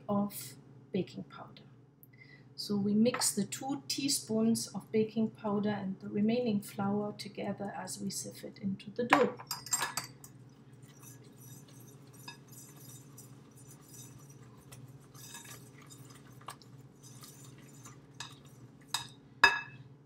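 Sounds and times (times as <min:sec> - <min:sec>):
flour sifting rustle: 0:10.6 - 0:19.0.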